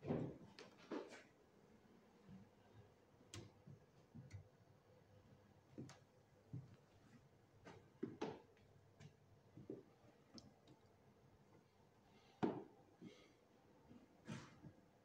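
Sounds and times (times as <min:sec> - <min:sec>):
faint clicks and soft knocks: 0:03.3 - 0:04.6, 0:05.7 - 0:07.0.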